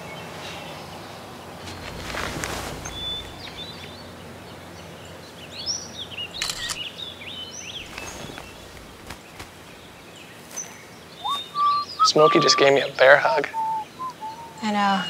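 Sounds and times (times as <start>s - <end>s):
small birds chirping: 0.0s - 15.0s
steady outdoor hiss: 0.0s - 15.0s
short rustling: 1.6s - 4.0s, 7.7s - 10.7s.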